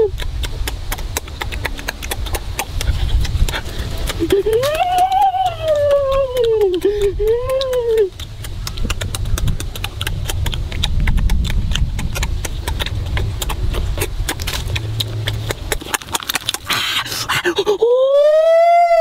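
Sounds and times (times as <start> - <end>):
chewing and lip-smacking: 0.0 - 17.8
low rumble: 0.0 - 18.9
roasted chicken torn apart: 14.0 - 17.0.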